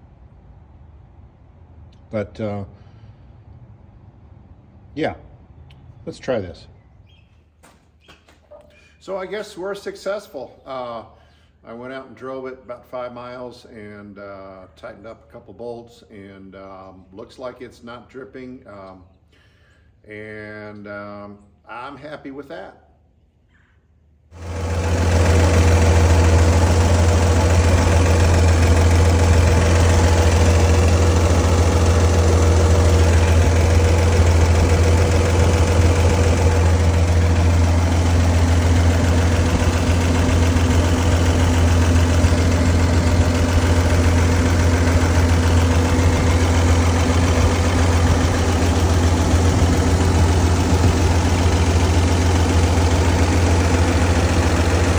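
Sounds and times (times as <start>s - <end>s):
truck engine idling: 24.4s - 54.9s.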